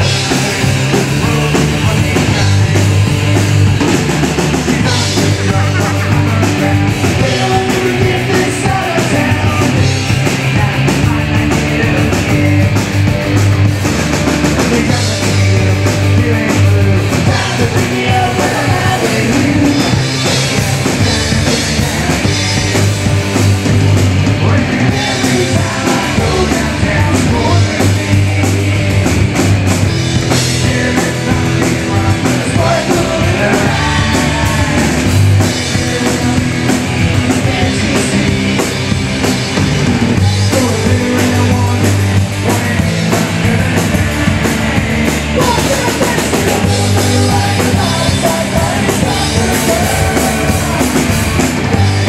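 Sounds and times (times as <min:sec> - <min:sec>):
rock band playing: 0:00.0 - 0:52.0
shouted vocals: 0:45.3 - 0:52.0.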